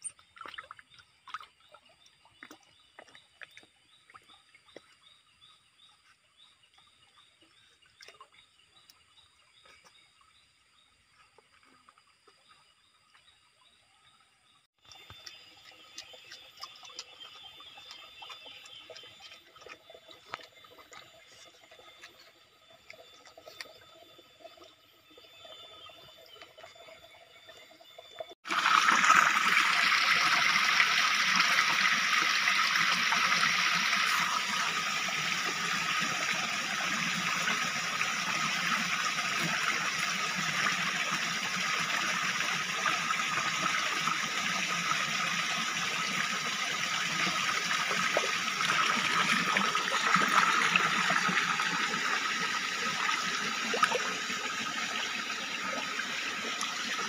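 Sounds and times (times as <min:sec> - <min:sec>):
stream water splashing over rocks: 0:28.1 - 0:57.0.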